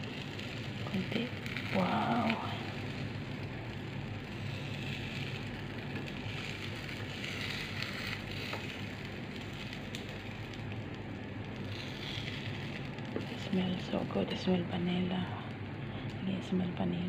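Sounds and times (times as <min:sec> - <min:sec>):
batter sizzling in a frying pan: 0:00.0 - 0:16.0
low steady hum: 0:00.0 - 0:17.0.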